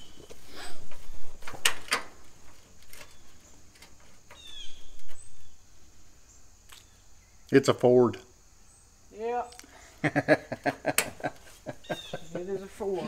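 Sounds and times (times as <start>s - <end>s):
bird chirp: 0.0s - 1.4s, 2.8s - 7.6s, 8.6s - 10.0s, 10.8s - 13.0s.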